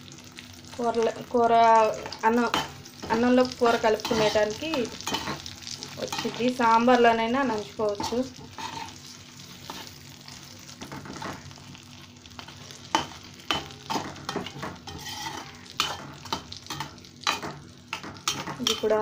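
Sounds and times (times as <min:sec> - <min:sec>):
vegetables sizzling in oil: 0:00.0 - 0:19.0
metal spatula scraping a pan: 0:02.0 - 0:06.7, 0:07.9 - 0:11.4, 0:12.4 - 0:19.0.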